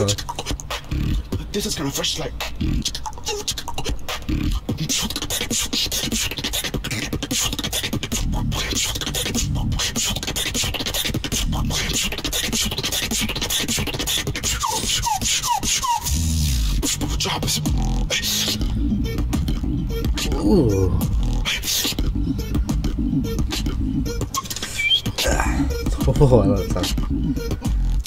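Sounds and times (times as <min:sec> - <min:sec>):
person beatboxing: 0:00.0 - 0:28.0
deep bass: 0:00.9 - 0:01.5, 0:08.2 - 0:09.8, 0:11.4 - 0:11.8, 0:16.1 - 0:24.4, 0:25.2 - 0:28.0
whistle-like chirps: 0:14.5 - 0:16.4, 0:24.1 - 0:25.8.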